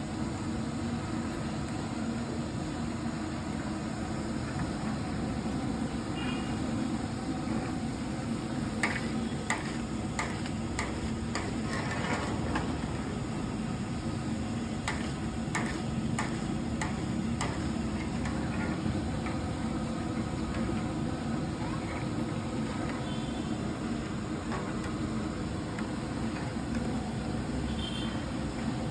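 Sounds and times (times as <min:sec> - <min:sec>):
deep frying in oil: 0:00.0 - 0:28.9.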